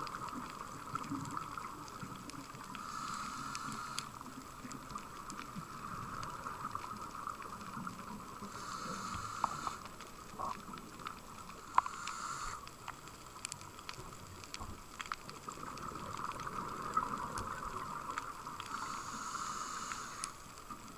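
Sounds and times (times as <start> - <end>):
muffled underwater hiss: 0.0 - 20.9
scuba regulator breaths: 2.7 - 4.3, 8.4 - 10.5, 11.5 - 13.0, 18.6 - 20.6.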